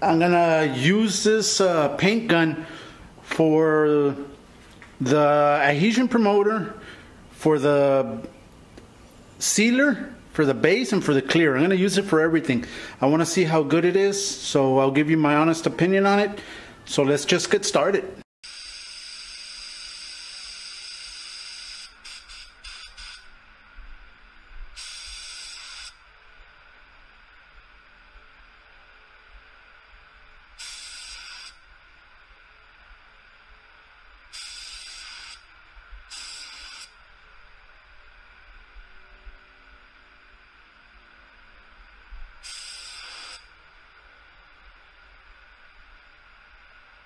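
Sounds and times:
spray gun hissing: 0:18.5 - 0:23.3, 0:24.8 - 0:26.0, 0:30.6 - 0:31.6, 0:34.3 - 0:35.5, 0:36.1 - 0:37.0, 0:42.4 - 0:43.5.

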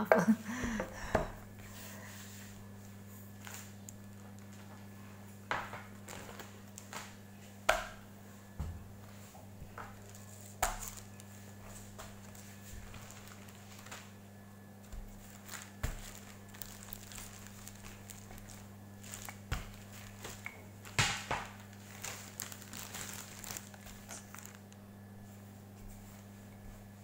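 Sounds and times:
steady low hum: 0:00.0 - 0:27.0
plastic bag rustling: 0:09.0 - 0:14.2, 0:14.8 - 0:25.4.

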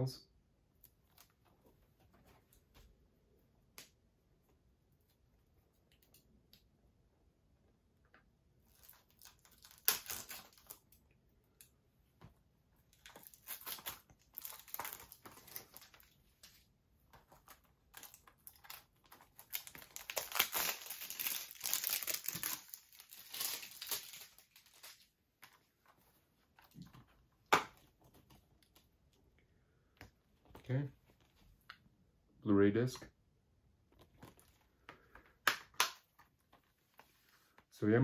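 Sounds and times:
plastic shrink-wrap crinkling and tearing: 0:08.7 - 0:11.0, 0:12.9 - 0:16.5, 0:17.2 - 0:25.2.

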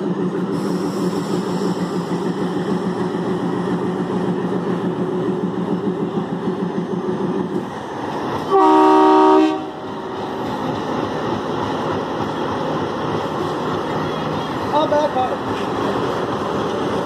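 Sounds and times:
diesel locomotive engine humming: 0:00.0 - 0:17.0
locomotive horn chord: 0:08.5 - 0:09.8.

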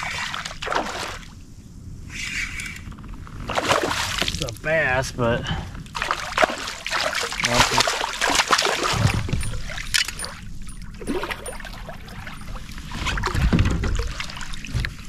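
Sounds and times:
water splashing: 0:00.0 - 0:01.3, 0:03.5 - 0:04.5, 0:05.9 - 0:15.0
dull low rumbles: 0:08.8 - 0:15.0.

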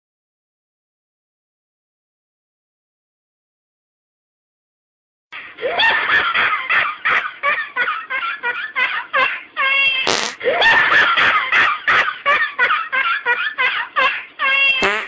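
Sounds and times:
person laughing hysterically: 0:05.6 - 0:15.0.

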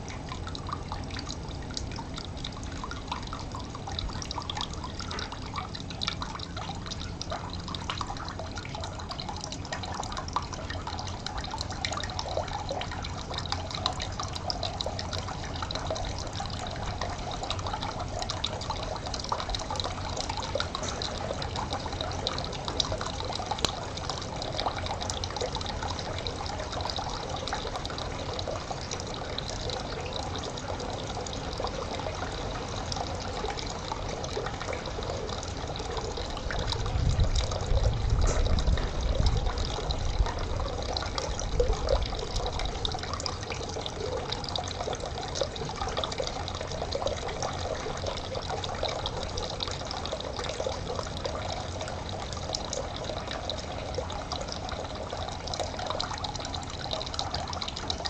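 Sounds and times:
water trickling in a stream: 0:00.0 - 0:58.0
low rumble: 0:36.8 - 0:40.9.

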